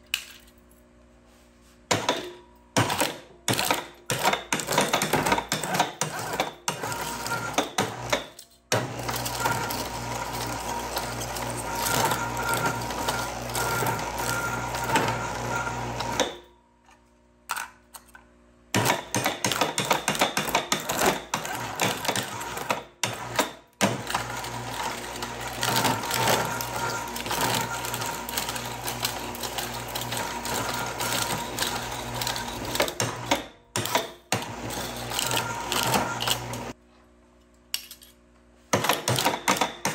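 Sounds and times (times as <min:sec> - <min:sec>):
shredder crunching metal cans: 0:01.9 - 0:16.4, 0:18.7 - 0:36.8, 0:38.7 - 0:39.9
steady motor hum: 0:02.8 - 0:16.3.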